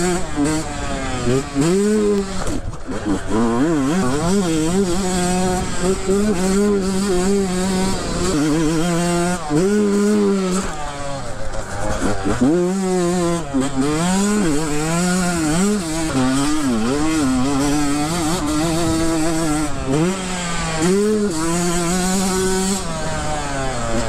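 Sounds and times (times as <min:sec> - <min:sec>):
dirt bike engine revving: 0:00.0 - 0:24.0.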